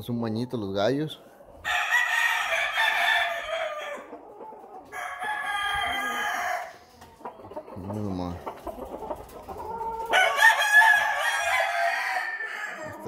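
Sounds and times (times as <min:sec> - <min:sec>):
rooster crowing: 0:01.6 - 0:04.2, 0:04.9 - 0:06.8, 0:09.8 - 0:13.0.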